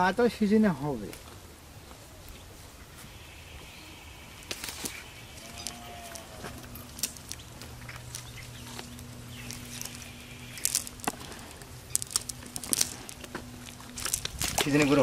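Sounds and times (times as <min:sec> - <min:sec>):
faint low hum: 0:01.2 - 0:15.0
net rustling and tapping: 0:04.4 - 0:15.0.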